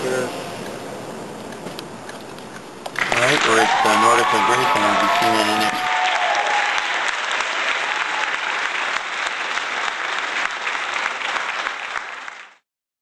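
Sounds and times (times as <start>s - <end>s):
applause: 3.0s - 12.6s.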